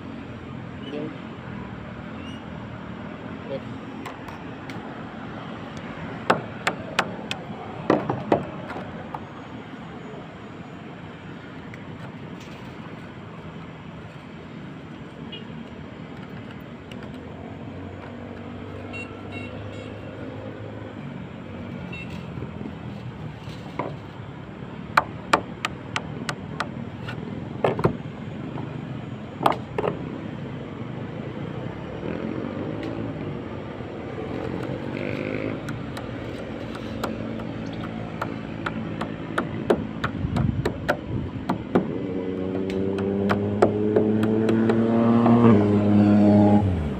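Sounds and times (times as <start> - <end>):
road traffic: 0.0 - 46.9
hand tools clicking and tapping: 35.6 - 45.5.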